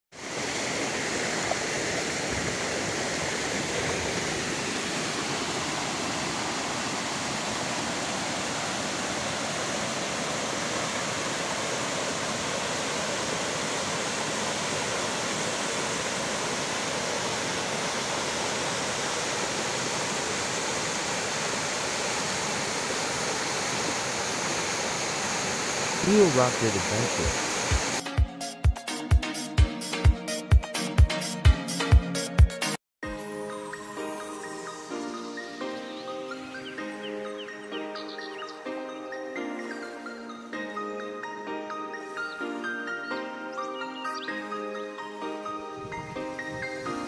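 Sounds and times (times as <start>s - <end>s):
water rushing over rocks: 0.2s - 28.0s.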